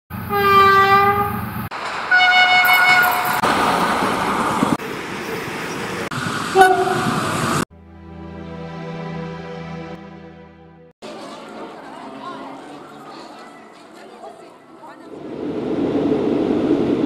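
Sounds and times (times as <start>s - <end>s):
locomotive horn blast: 0.1s - 1.5s, 2.1s - 3.4s, 6.5s - 7.3s
trains rumbling on rails: 0.1s - 7.6s, 11.0s - 17.0s
short train horn toot: 0.3s - 1.4s, 2.1s - 3.4s, 6.6s - 7.2s
higher-pitched horn blast: 0.3s - 1.5s, 2.1s - 3.4s, 6.6s - 7.2s
music: 7.7s - 12.6s.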